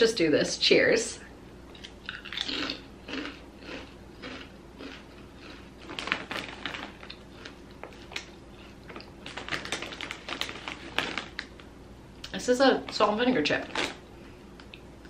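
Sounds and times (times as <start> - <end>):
potato chip crunching in mouth: 1.8 - 11.6.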